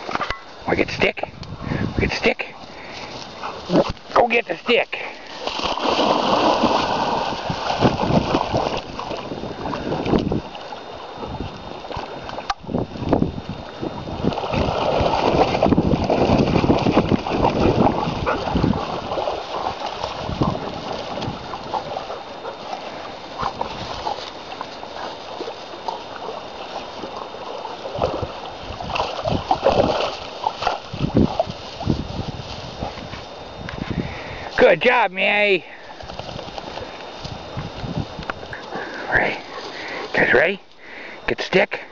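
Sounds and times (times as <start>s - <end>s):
water splashing and lapping: 2.2s - 34.6s, 35.8s - 40.3s
dog splashing out of water: 5.2s - 10.7s, 14.0s - 32.4s.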